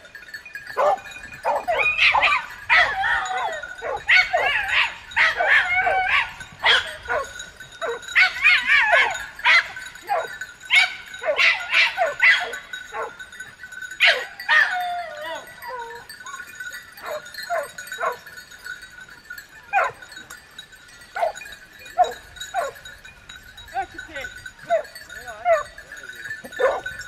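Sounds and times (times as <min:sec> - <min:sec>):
dogs wavering cries: 0:00.0 - 0:18.6, 0:19.4 - 0:23.0, 0:23.7 - 0:27.0
hunting dogs barking: 0:00.7 - 0:13.3, 0:14.0 - 0:18.3, 0:19.6 - 0:20.3, 0:21.1 - 0:22.9, 0:24.6 - 0:25.8, 0:26.4 - 0:27.0.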